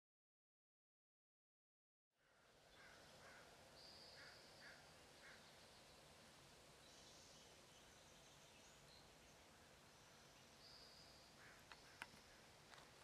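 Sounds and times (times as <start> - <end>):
distant small birds calling: 2.2 - 13.0
faint hiss: 2.2 - 13.0
soft clicks: 11.6 - 12.9.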